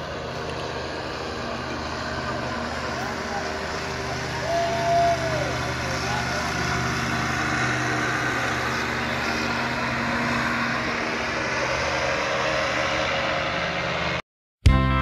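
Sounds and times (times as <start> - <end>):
engine and propeller drone: 0.0 - 14.2.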